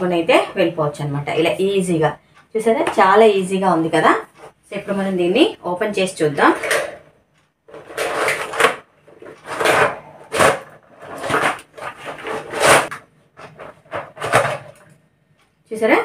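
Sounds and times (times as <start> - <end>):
plastic sections sliding scrapes: 7.7 - 14.9.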